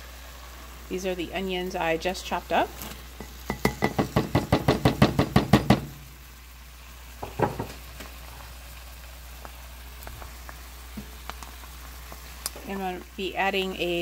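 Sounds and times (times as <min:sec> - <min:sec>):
broth sizzling faintly: 0:05.8 - 0:14.0.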